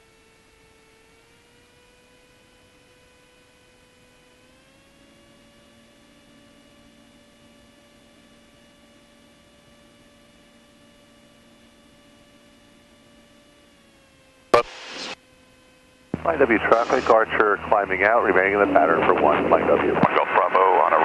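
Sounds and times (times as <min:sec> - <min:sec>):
faint whining intercom hum: 0:04.9 - 0:15.2, 0:16.2 - 0:21.0.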